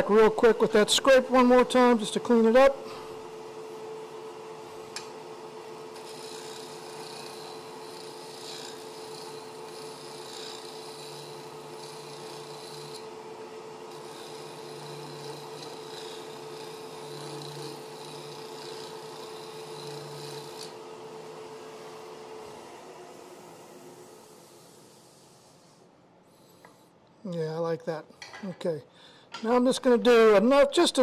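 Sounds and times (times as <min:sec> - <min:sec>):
lathe humming: 0:00.0 - 0:26.9
chisel scraping spinning wood: 0:05.6 - 0:25.6.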